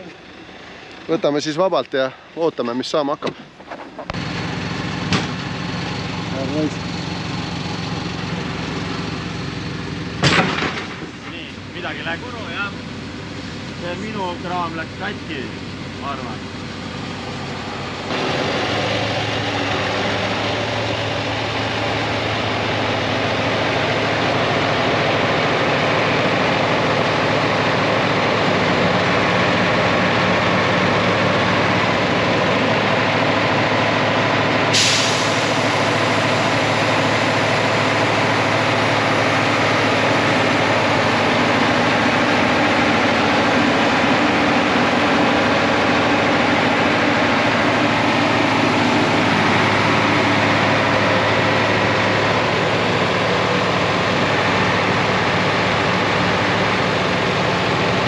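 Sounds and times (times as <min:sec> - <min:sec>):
truck diesel engine running: 0:00.0 - 0:58.0
air brake hiss: 0:34.7 - 0:35.7.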